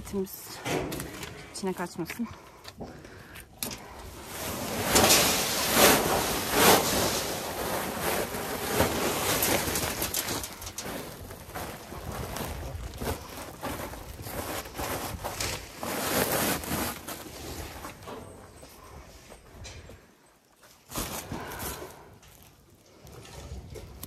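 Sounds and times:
feed pouring from sack: 4.2s - 11.5s.

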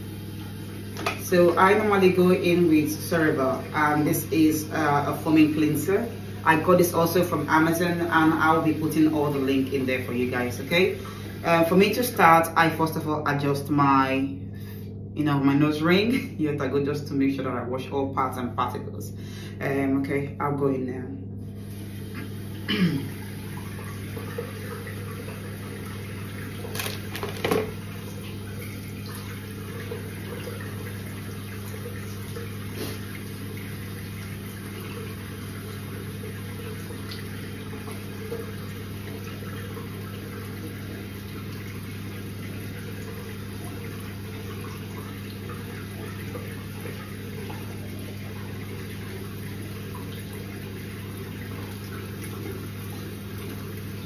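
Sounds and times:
tap running into sink: 0.9s - 1.3s, 26.6s - 28.4s.

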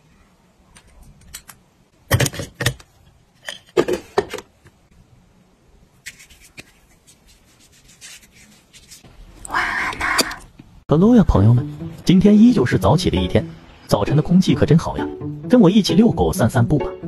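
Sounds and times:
hands rubbing in cream: 6.0s - 9.1s.

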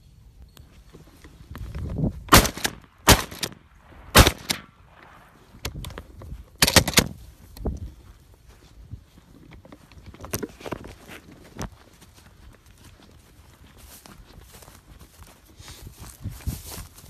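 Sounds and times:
shotgun blasts: 2.3s - 5.4s.

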